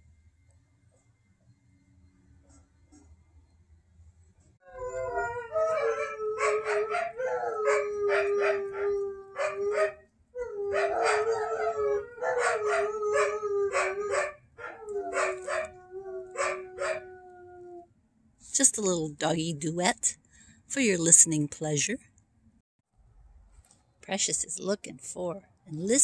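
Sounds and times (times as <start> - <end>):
dogs howling: 4.6 - 17.9
dogs barking and yipping: 5.0 - 17.1.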